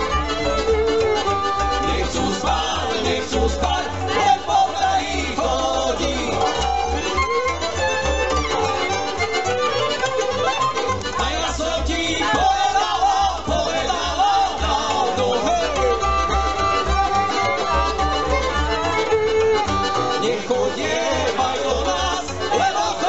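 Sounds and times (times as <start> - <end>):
clarinet melody: 0.0 - 4.4, 6.2 - 11.3, 15.4 - 21.3
violin melody: 0.0 - 11.4, 13.5 - 23.0
pulsing double bass: 0.0 - 23.0.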